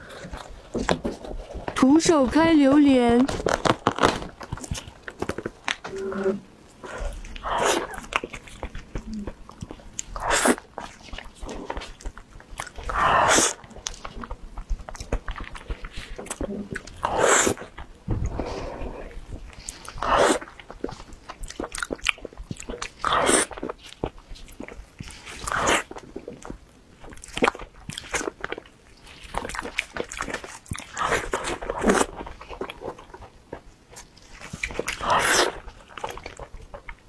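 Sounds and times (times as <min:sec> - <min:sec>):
wet chewing mouth noises: 0:03.3 - 0:37.0
loud long mouth noise: 0:12.9 - 0:13.7, 0:16.3 - 0:20.6, 0:23.0 - 0:23.6, 0:34.9 - 0:35.6.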